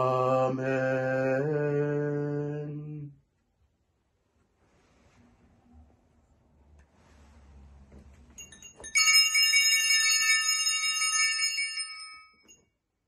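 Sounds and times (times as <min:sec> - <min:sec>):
altar bell ringing: 0:08.4 - 0:12.7.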